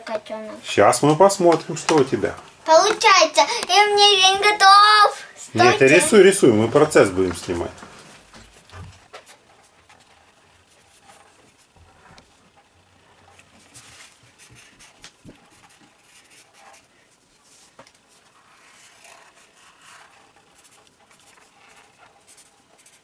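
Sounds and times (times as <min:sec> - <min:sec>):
markers scratching on paper: 0:08.4 - 0:23.0.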